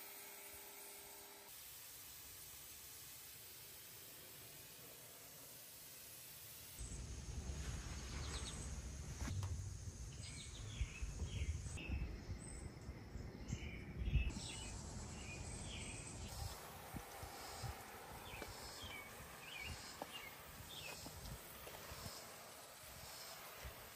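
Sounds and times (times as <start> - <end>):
low uneven rumble: 6.8 - 14.1
birds chirping: 6.8 - 23.7.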